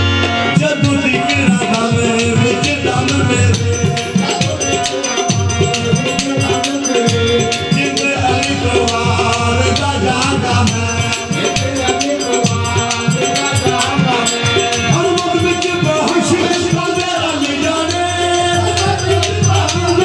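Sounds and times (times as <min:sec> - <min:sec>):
harmonium: 0:00.0 - 0:20.0
tabla: 0:00.0 - 0:20.0
men singing: 0:00.2 - 0:20.0
sharp percussive strikes: 0:00.2 - 0:20.0.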